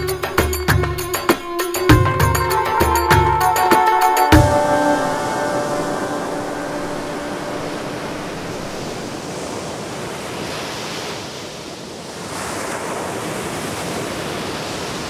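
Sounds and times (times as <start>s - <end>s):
sea waves breaking on shore: 4.6s - 15.0s.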